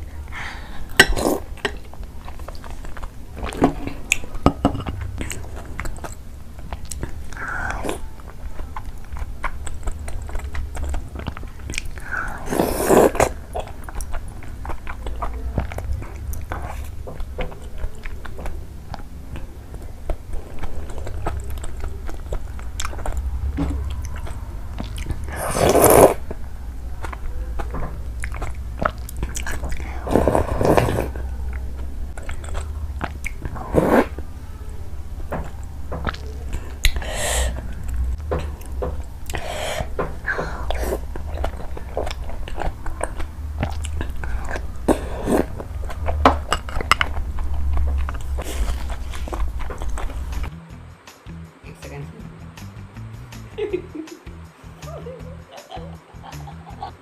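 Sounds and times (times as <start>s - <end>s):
slurping: 0.0s - 4.3s, 8.9s - 18.3s, 19.0s - 26.4s, 28.1s - 34.3s, 38.6s - 50.5s
chewing and wet mouth sounds: 0.0s - 50.6s
steady low hum: 0.0s - 57.0s.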